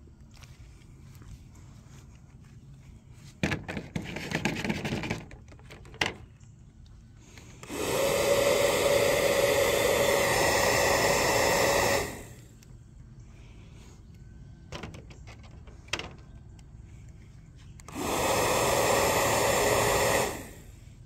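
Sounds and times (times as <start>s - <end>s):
rustling on dry grass: 0.2s - 5.1s
small electric fan motor whirring: 7.5s - 12.8s, 17.8s - 21.0s.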